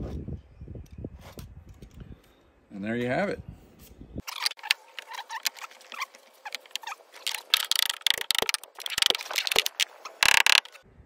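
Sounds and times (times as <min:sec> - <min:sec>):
clicks knocks and scrapes: 0:04.2 - 0:10.8.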